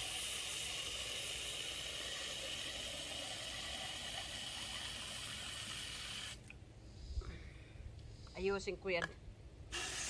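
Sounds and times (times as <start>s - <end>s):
hose spraying water into a can: 0.0s - 6.4s, 9.7s - 10.0s.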